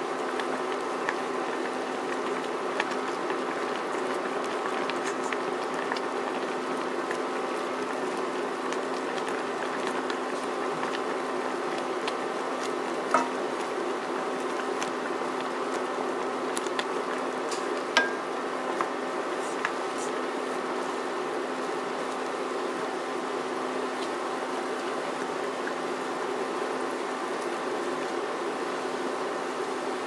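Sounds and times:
sauce bubbling in a wok: 0:00.0 - 0:30.0
wooden spatula knocking against pan: 0:13.2 - 0:13.4, 0:18.0 - 0:18.3.

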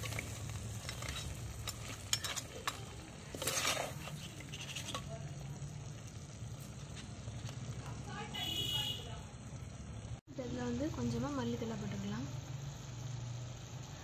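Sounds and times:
ladle scraping clay pot: 0:00.0 - 0:05.5
food sizzling in oil: 0:00.0 - 0:14.0.

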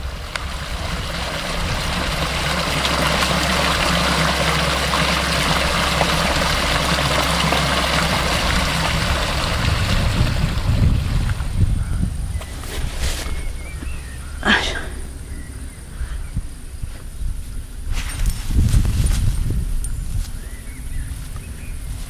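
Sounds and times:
brook water flowing over rocks: 0:00.0 - 0:11.7
low steady hum: 0:00.0 - 0:22.0.

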